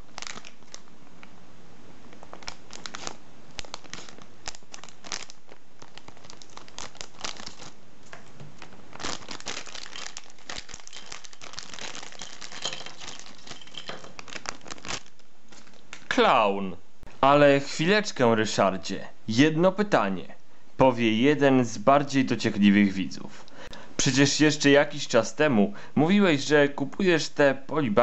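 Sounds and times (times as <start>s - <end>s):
plastic bag crinkling: 0.0s - 1.0s, 2.1s - 16.1s.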